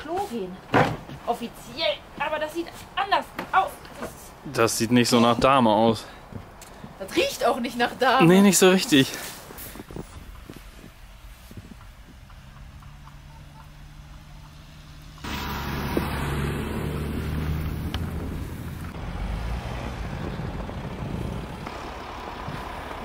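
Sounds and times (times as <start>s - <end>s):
vehicle driving past: 12.4s - 23.0s.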